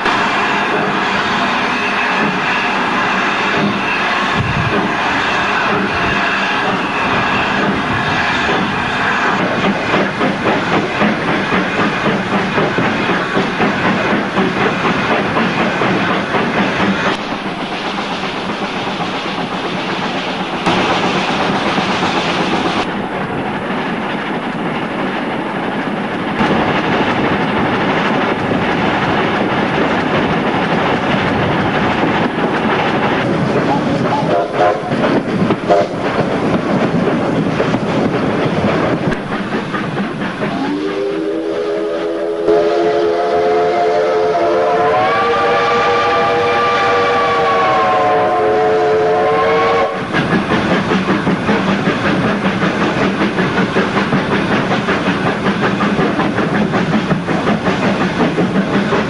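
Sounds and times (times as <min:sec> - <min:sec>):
steam train beat: 0:00.0 - 0:59.0
wheel clatter over rails: 0:50.0 - 0:59.0.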